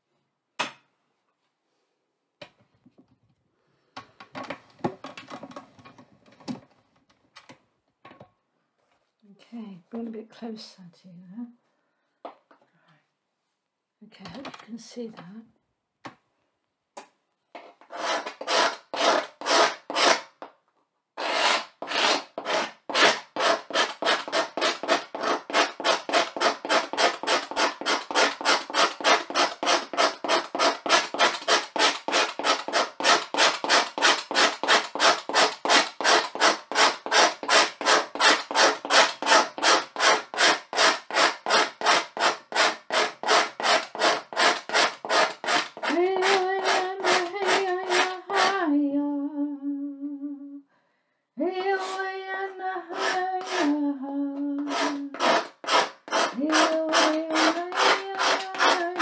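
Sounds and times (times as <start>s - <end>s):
tool scratching a blackboard: 17.8s - 20.4s, 21.2s - 48.6s, 51.6s - 52.1s, 52.9s - 53.8s, 54.6s - 59.0s
person humming: 45.9s - 50.6s, 51.5s - 55.2s.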